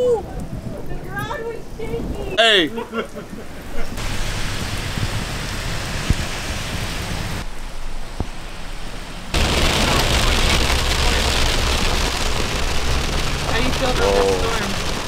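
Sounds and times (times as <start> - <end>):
heavy rain falling: 3.0 - 7.5, 8.1 - 15.0
rain hitting a car windshield: 4.0 - 7.4, 9.4 - 15.0
car low steady hum: 4.0 - 15.0.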